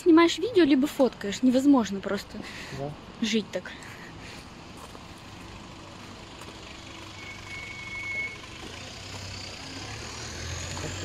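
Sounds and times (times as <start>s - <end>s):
vehicle engine hum: 0.0s - 11.0s
short high beep: 7.1s - 8.5s.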